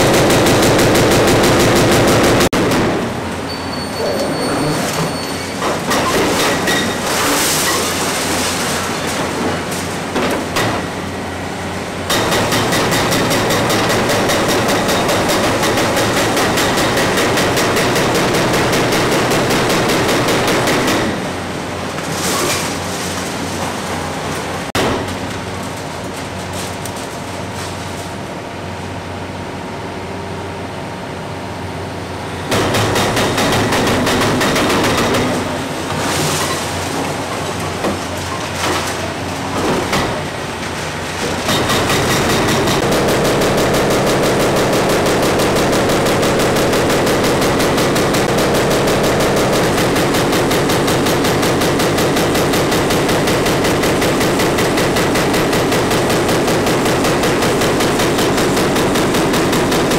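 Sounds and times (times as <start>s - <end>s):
hydraulic breaker hammering concrete: 12.1s - 21.4s, 32.5s - 35.6s, 41.3s - 59.9s
diesel engine running: 40.2s - 59.9s.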